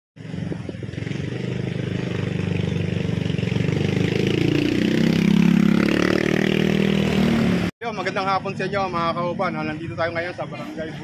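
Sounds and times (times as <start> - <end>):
motorcycle engine running: 0.2 - 7.7.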